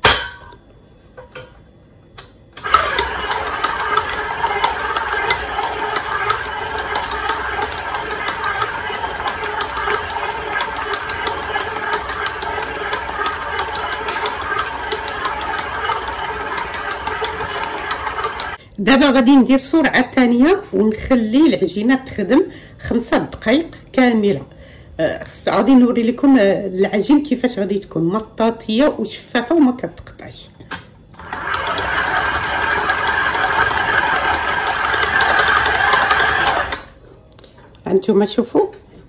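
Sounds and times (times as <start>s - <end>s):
dough mixer motor humming: 2.6s - 18.6s, 31.2s - 37.0s.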